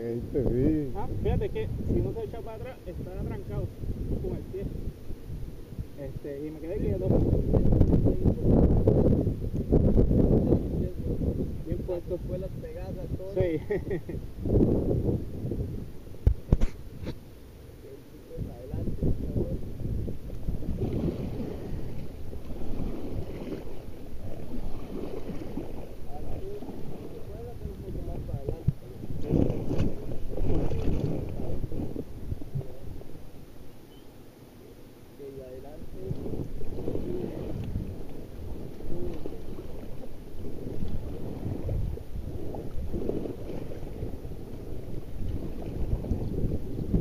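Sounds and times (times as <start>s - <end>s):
wind rumble on microphone: 0.0s - 33.5s, 35.2s - 47.0s
water sloshing against raft: 20.1s - 35.0s, 35.7s - 47.0s.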